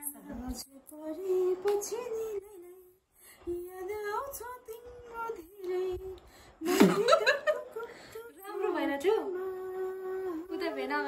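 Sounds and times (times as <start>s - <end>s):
woman singing: 0.0s - 11.0s.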